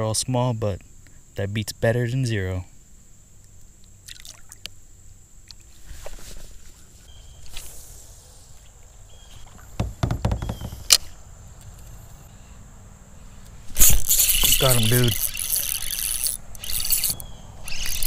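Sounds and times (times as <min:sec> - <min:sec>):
fishing reel knocks and clicks: 0:13.8 - 0:18.0.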